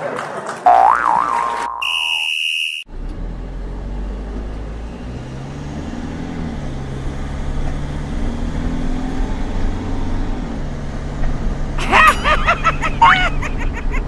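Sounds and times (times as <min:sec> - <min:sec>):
wobbling cartoon boing: 0:00.6 - 0:02.4
buzzer beep: 0:01.8 - 0:02.9
cartoon car engine hum: 0:02.9 - 0:14.0.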